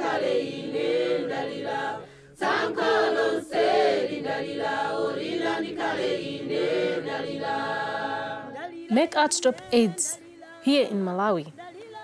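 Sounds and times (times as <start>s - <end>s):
choir singing in harmony: 0.0s - 9.0s.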